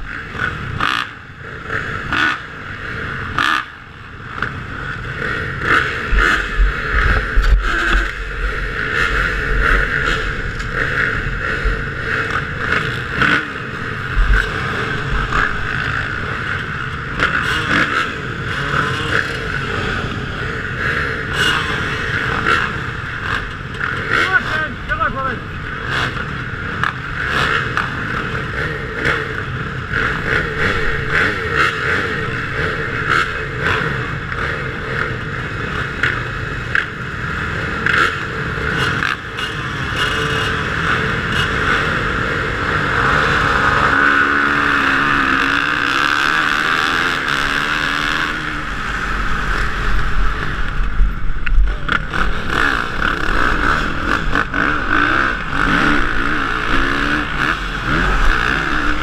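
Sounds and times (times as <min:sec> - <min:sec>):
motocross bikes revving: 0:00.0 - 0:59.0
wind rumbling on helmet camera: 0:04.2 - 0:17.2, 0:48.3 - 0:59.0.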